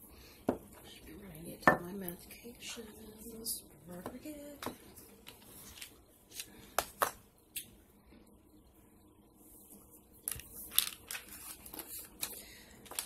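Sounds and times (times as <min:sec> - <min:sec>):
medicine bottles clicking and rattling: 0:10.2 - 0:13.0.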